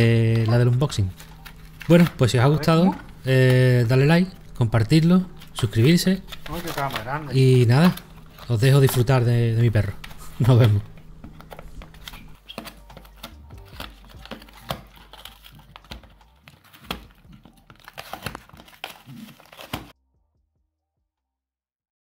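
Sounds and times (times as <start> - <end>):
dog tearing cardboard: 5.5 - 9.0, 11.4 - 19.9.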